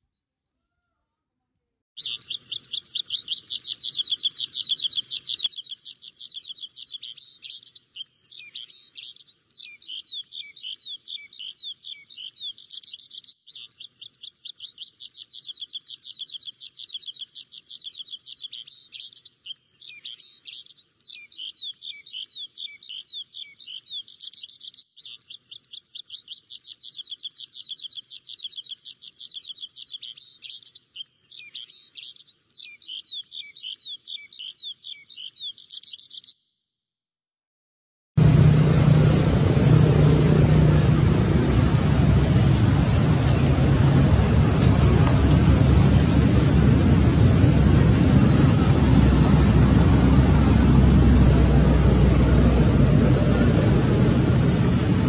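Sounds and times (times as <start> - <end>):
small birds chirping: 2.0 - 36.6
low rumble: 38.2 - 55.0.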